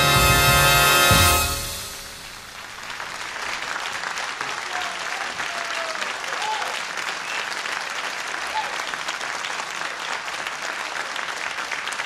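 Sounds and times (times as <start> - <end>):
music: 0.0 - 2.5
audience applauding: 0.0 - 12.0.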